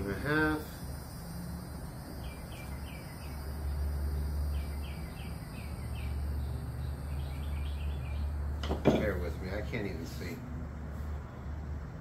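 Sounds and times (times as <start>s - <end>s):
steady low hum: 0.0s - 12.0s
bird chirping: 2.1s - 8.5s.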